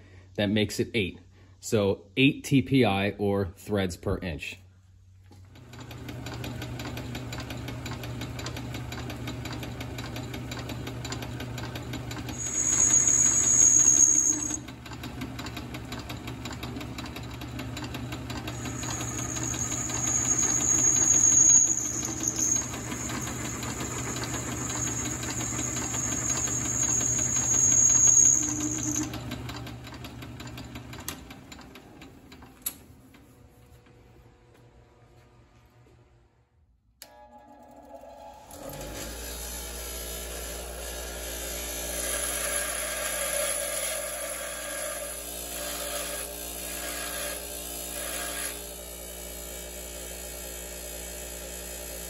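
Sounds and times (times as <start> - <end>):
lathe motor humming: 10.6 - 30.6
drill cut squealing: 12.1 - 14.6, 18.3 - 29.2.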